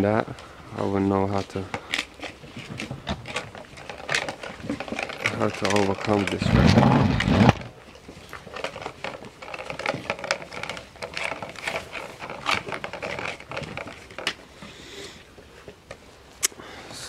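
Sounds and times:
puppies eating crunching: 0.0 - 16.1.

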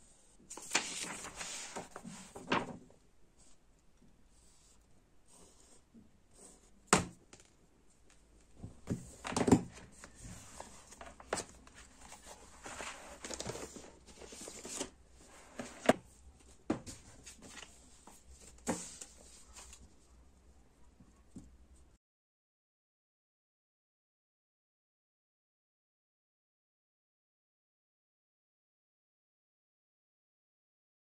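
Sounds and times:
paper and plastic rustling: 0.5 - 2.8, 8.6 - 16.0.

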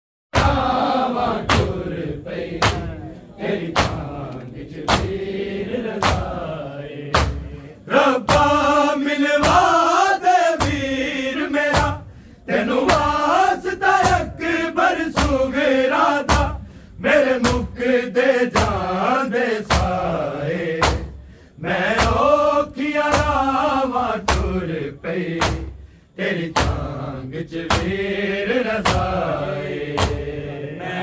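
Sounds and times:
men chanting a lament: 0.4 - 31.0
hands striking the chest: 2.6 - 3.0, 3.7 - 5.2, 5.9 - 6.4, 7.1 - 7.6, 20.8 - 21.2, 22.0 - 22.3, 24.2 - 24.6, 26.5 - 26.9, 27.7 - 28.0, 28.8 - 29.2, 29.9 - 30.3.

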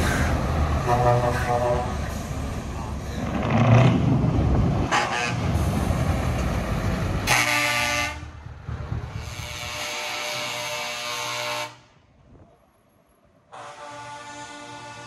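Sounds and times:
truck air horn blasts: 0.8 - 2.1, 7.2 - 8.3, 9.2 - 12.0, 13.5 - 15.0.

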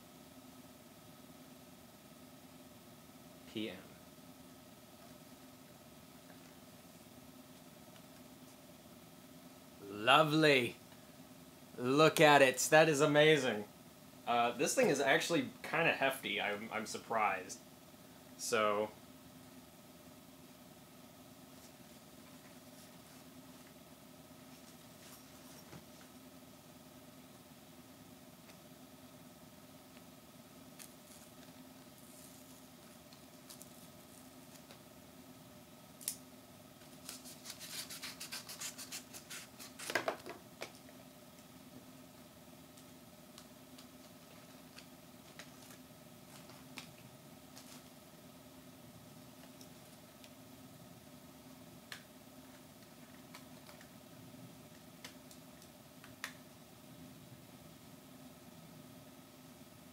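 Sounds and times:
faint steady hum: 0.0 - 59.9.

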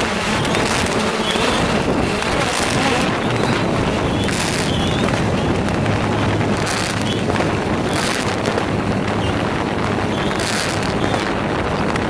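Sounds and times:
drone propellers and motors: 0.0 - 12.0
low hum: 0.0 - 12.0
wind on microphone: 0.0 - 12.0.

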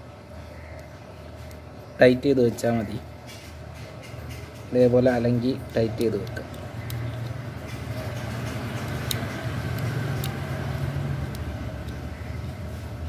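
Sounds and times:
low engine-like rumble: 4.0 - 13.0.

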